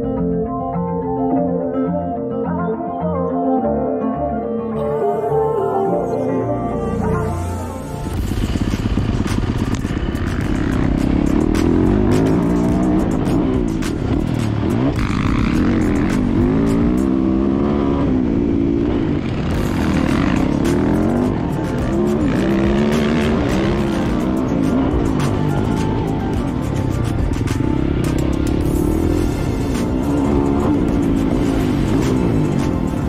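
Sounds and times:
music playing: 0.0 - 33.0
dirt bike engine revving: 8.0 - 26.6, 27.4 - 33.0.

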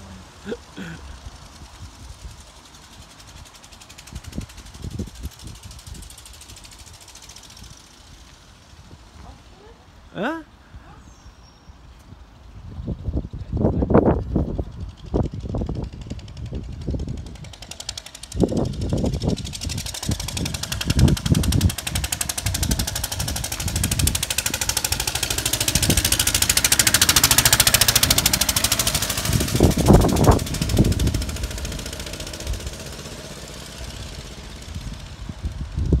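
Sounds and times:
motorbike riding past: 14.8 - 36.0.

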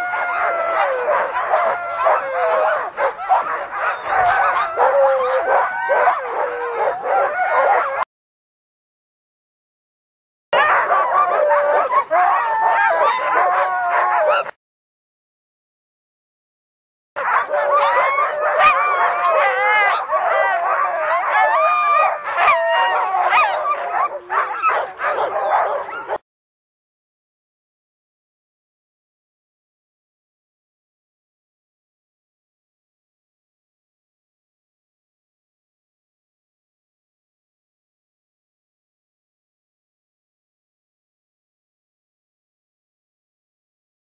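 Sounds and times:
sled dogs barking and yelping: 0.0 - 8.1, 10.6 - 14.6, 17.2 - 26.2.

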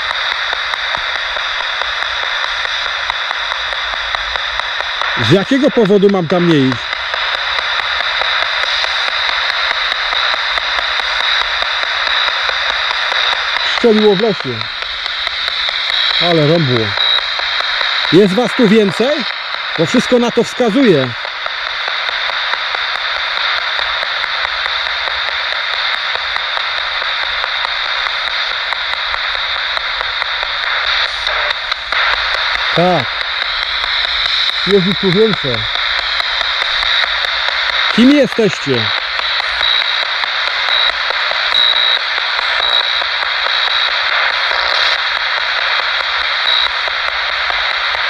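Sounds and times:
quick evenly spaced ticks: 0.0 - 48.0
radio static hiss: 0.0 - 48.0
short high beeps: 40.7 - 42.0.

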